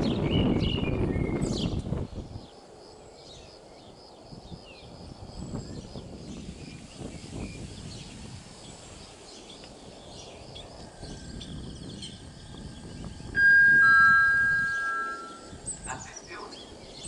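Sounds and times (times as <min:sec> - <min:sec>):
faint bird chirps: 0:09.3 - 0:17.0
two-tone electronic chime: 0:13.4 - 0:15.6.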